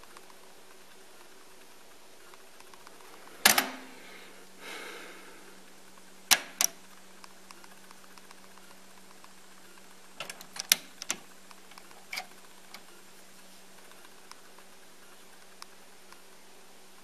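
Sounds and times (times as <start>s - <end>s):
steady low hum: 0.0s - 17.0s
cassette deck button clicks: 3.4s - 4.0s, 6.3s - 6.8s, 10.2s - 12.9s.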